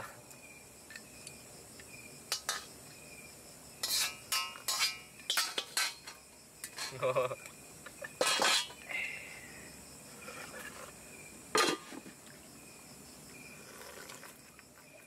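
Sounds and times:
night insects chirping: 0.0s - 15.0s
metal cookware clattering: 2.3s - 2.7s, 3.8s - 7.1s, 8.0s - 8.8s, 11.5s - 11.9s.

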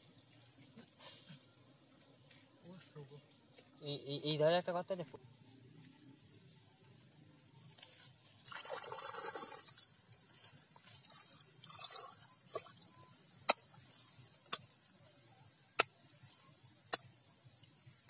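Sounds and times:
hand splashing in muddy water: 8.4s - 9.8s.

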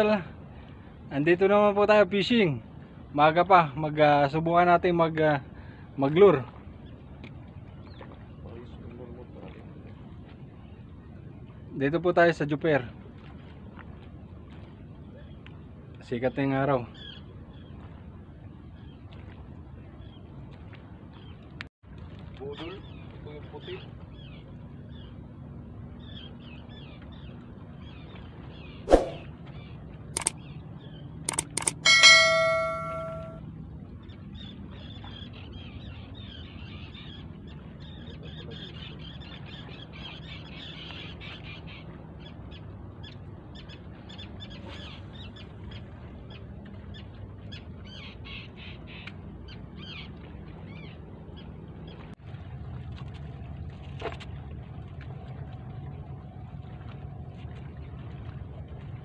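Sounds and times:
sharp clicks: 30.2s - 30.4s, 31.3s - 32.0s
birds chirping: 30.2s - 33.4s
low steady hum: 30.4s - 33.6s
loud metallic clang: 31.7s - 33.4s.

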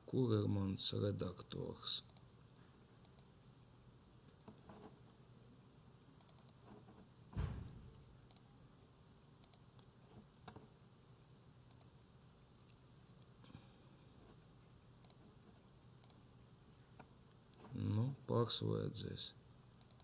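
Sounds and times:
mouse and keyboard clicks: 6.2s - 6.7s, 19.8s - 20.0s
dull thump: 7.3s - 8.0s.

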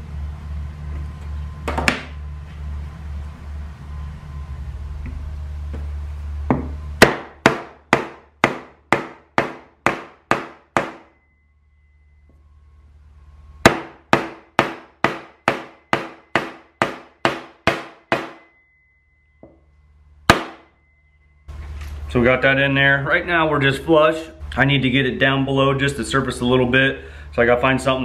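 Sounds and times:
hammer blows on wooden block: 6.5s - 11.2s, 13.6s - 18.6s.

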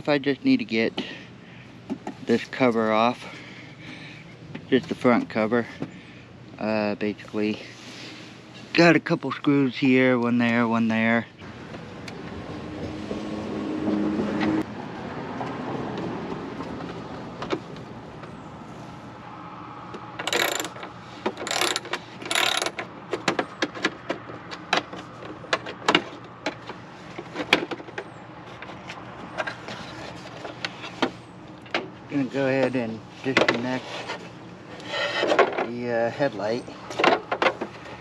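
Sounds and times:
screwdriver scraping: 20.2s - 22.9s.

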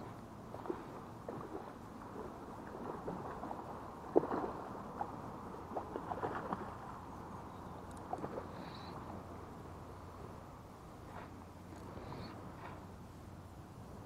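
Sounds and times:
fish splashing in water: 0.5s - 7.1s.

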